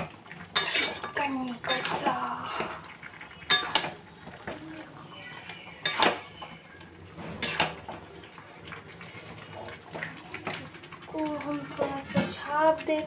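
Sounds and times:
spatula clanking on pan: 0.5 - 2.0, 3.5 - 4.0, 5.8 - 6.5, 7.3 - 7.9
metal spatula scraping pan: 0.5 - 2.8, 7.2 - 7.9.

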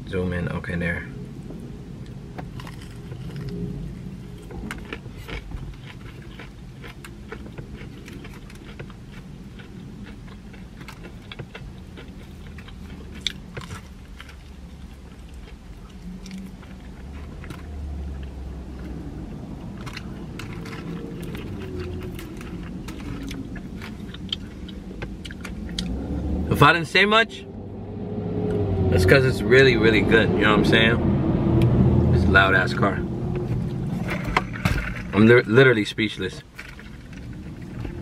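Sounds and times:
low rumble: 0.0 - 35.5
chewing crispy chicken: 2.0 - 26.0.

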